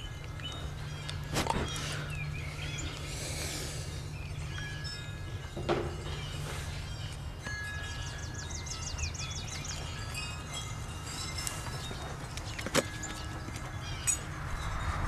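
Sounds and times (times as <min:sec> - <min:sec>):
birdsong trill: 0:00.0 - 0:15.0
wind rumble on microphone: 0:04.0 - 0:15.0.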